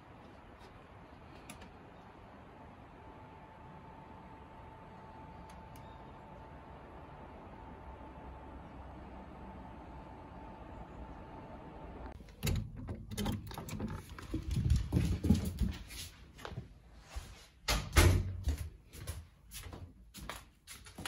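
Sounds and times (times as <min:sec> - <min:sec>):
faint hum: 0:00.0 - 0:14.5
handling noise: 0:12.2 - 0:16.2
footsteps on wooden floor: 0:14.2 - 0:17.3.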